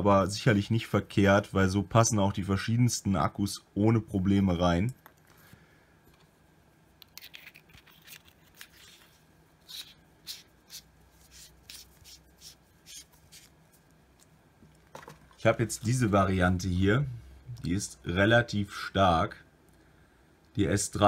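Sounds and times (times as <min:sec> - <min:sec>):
flashlight cap screwing scrapes: 0:07.0 - 0:09.1.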